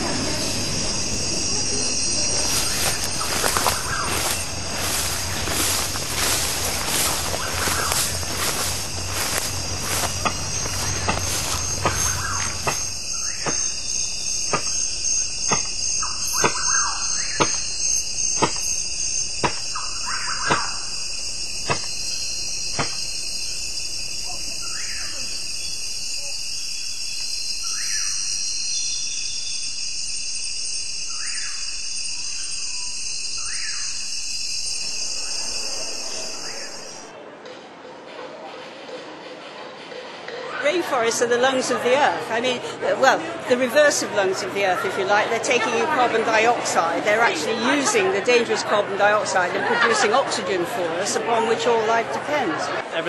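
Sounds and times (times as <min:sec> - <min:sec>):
short rising calls: 0:00.0 - 0:26.3
high-pitched insect drone: 0:00.0 - 0:37.1
sharp knocks: 0:19.4 - 0:19.7, 0:21.6 - 0:21.9, 0:22.7 - 0:23.0.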